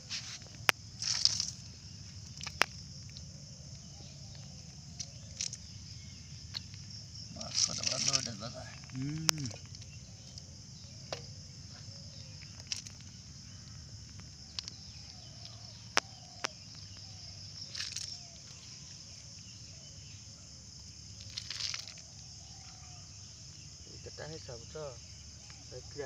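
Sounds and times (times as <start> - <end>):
short rustles on dry ground: 0.0 - 2.6
insects chirring: 0.0 - 26.0
snail shells clicking: 0.5 - 5.8, 6.5 - 11.5, 12.2 - 18.2.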